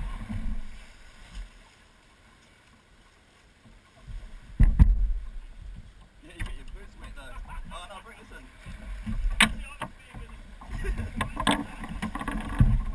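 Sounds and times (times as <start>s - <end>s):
small knocks on boat: 3.6s - 7.2s, 8.6s - 12.9s
wind rumble on microphone: 8.7s - 12.9s.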